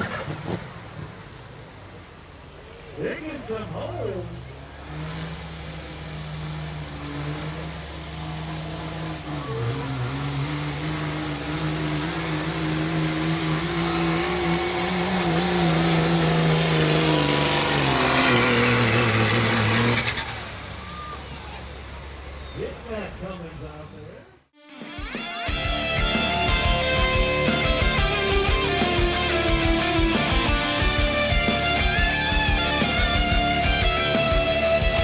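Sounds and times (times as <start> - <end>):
diesel engine at full throttle: 0.0 - 24.5, 25.5 - 35.0
high whistle: 20.2 - 22.1.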